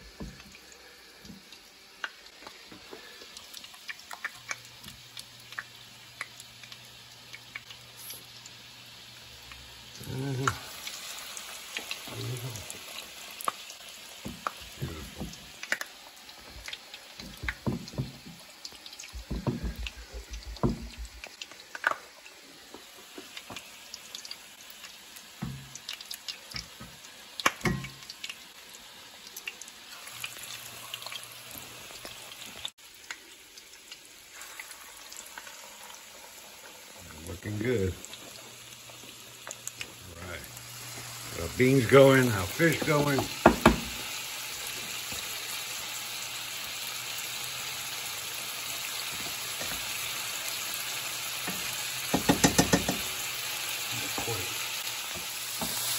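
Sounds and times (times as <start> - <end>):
fish frying in oil: 0.0 - 55.9
clicks and knocks in pan: 26.6 - 28.1, 51.5 - 53.1.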